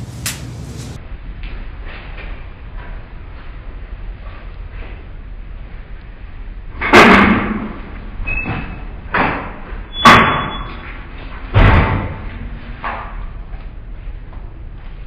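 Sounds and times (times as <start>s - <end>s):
metal doors clunking and banging: 6.8s - 12.4s
door squeaks: 8.2s - 9.0s, 9.9s - 11.0s.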